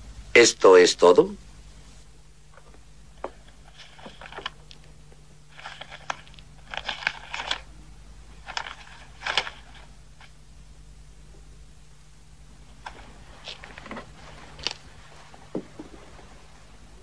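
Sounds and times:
faint steady hum: 0:00.0 - 0:17.0
paper rustling: 0:03.4 - 0:04.9, 0:05.5 - 0:07.7, 0:08.4 - 0:10.3, 0:12.8 - 0:16.6.

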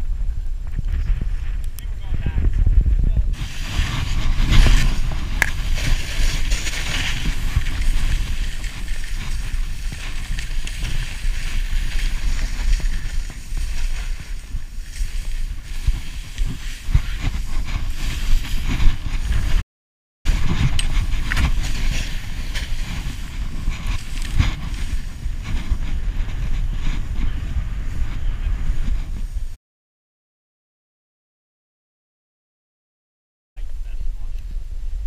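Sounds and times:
wind buffeting microphone: 0:00.0 - 0:19.6, 0:20.3 - 0:29.6
skis hissing through snow: 0:03.4 - 0:19.6, 0:20.3 - 0:26.7.

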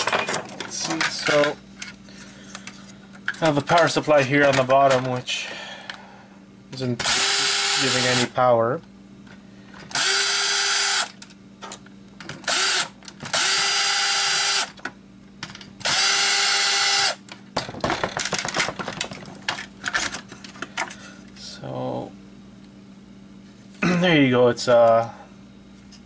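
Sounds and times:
cordless drill whining: 0:07.0 - 0:08.2, 0:10.0 - 0:11.1, 0:12.5 - 0:14.7, 0:15.8 - 0:17.2.

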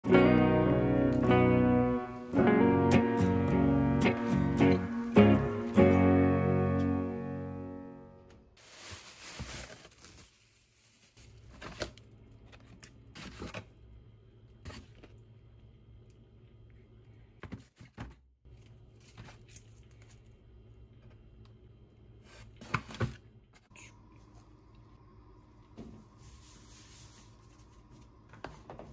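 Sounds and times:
plastic packaging rustling: 0:08.6 - 0:13.5.

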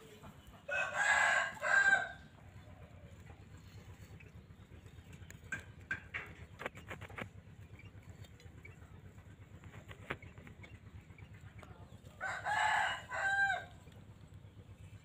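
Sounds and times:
rooster crowing: 0:00.6 - 0:02.3, 0:12.2 - 0:13.8.

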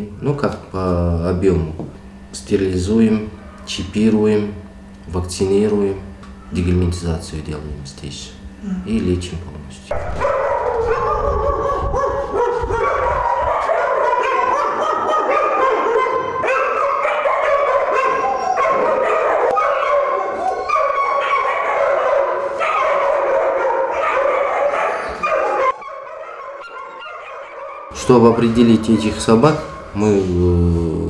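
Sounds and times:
dogs barking: 0:03.3 - 0:03.8, 0:09.9 - 0:30.0.

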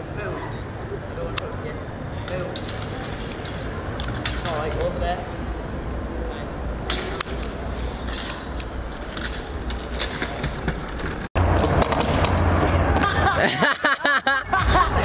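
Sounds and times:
steady low hum: 0:00.0 - 0:13.5
street background noise: 0:00.0 - 0:15.0
scooter clicks and knocks: 0:08.1 - 0:13.2.

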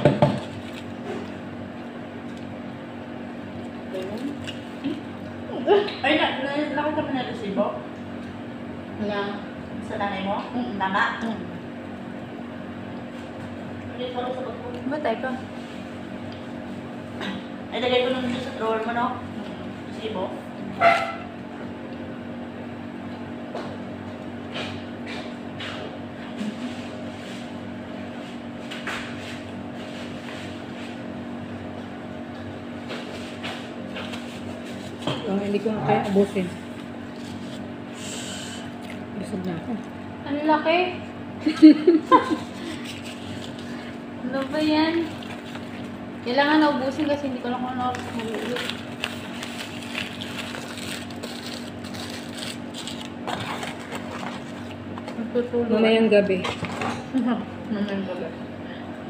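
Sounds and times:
machine hum with low tones: 0:00.0 - 0:59.0
paper wrapper crinkling: 0:42.5 - 0:43.8, 0:45.0 - 0:46.0, 0:47.9 - 0:54.8.

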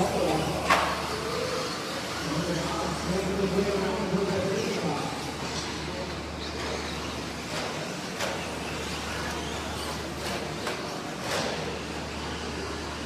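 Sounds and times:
rc truck motors whirring: 0:00.3 - 0:02.4, 0:06.4 - 0:13.0.

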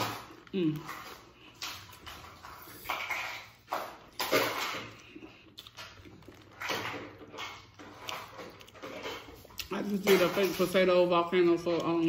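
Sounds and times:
biting and slurping: 0:00.0 - 0:11.0.

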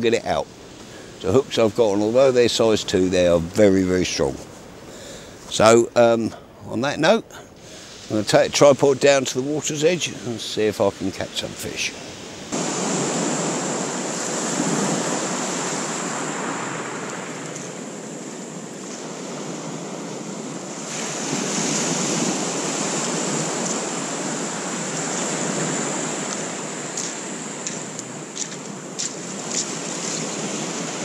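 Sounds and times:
surf washing up shingle beach: 0:00.0 - 0:06.2, 0:07.0 - 0:31.0.

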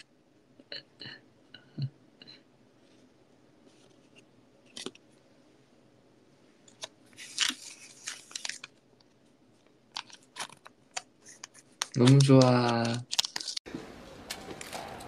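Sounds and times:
rustling and scraping: 0:02.8 - 0:05.1.

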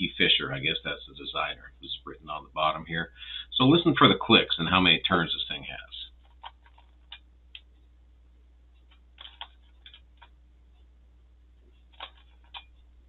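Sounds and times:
twisty puzzle clicking: 0:08.8 - 0:10.3, 0:11.8 - 0:12.8.

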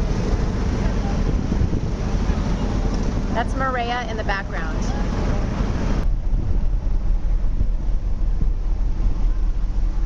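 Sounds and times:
wind buffeting the microphone: 0:00.0 - 0:10.0.

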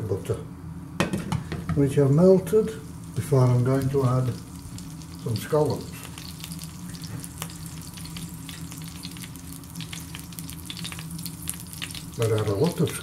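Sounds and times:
low steady hum: 0:00.0 - 0:13.0
butter sizzling in a frying pan: 0:02.8 - 0:13.0.

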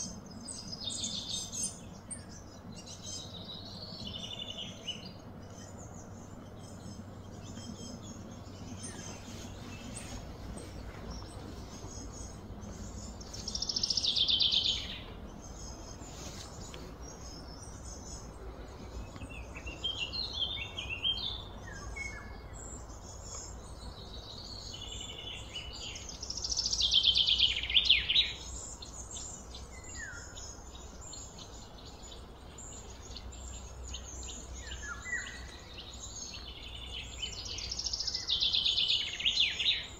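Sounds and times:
low background noise: 0:00.0 - 0:39.9
trilled bird songs: 0:00.0 - 0:39.9
wild birds chirping: 0:00.0 - 0:39.9.

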